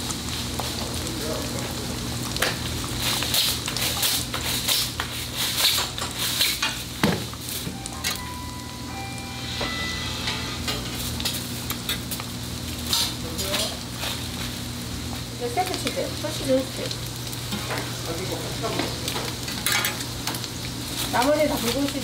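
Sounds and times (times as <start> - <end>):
food sizzling on a griddle: 0.0 - 22.0
metal spatula scraping and tapping: 10.3 - 11.0.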